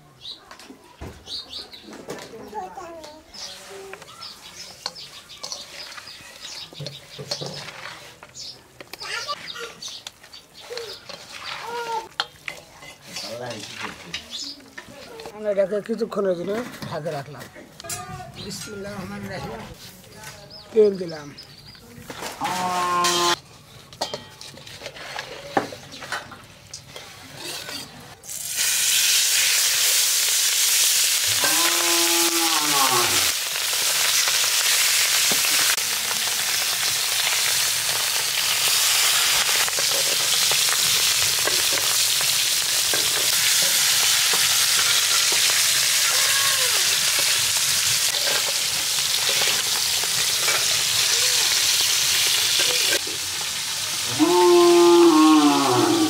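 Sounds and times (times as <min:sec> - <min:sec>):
fish sizzling in hot oil: 0:28.2 - 0:55.3.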